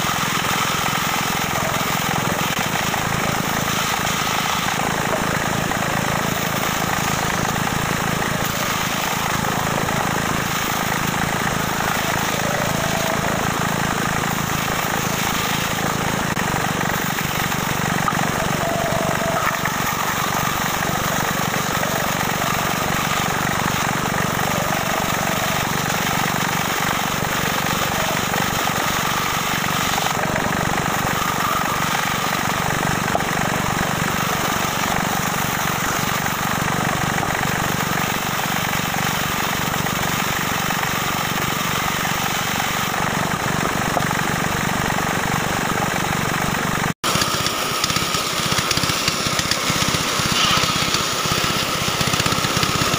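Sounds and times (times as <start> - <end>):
bandsaw cutting wood: 0.0 - 52.9.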